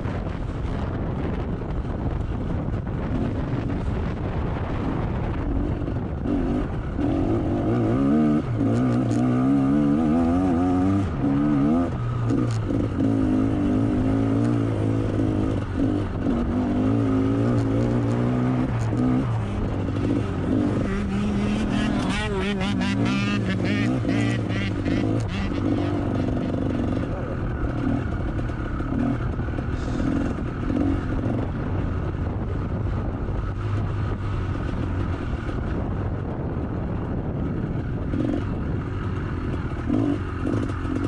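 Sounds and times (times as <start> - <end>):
wind on microphone: 0.0 - 41.0
motocross bike engine revving: 5.7 - 31.9, 38.0 - 41.0.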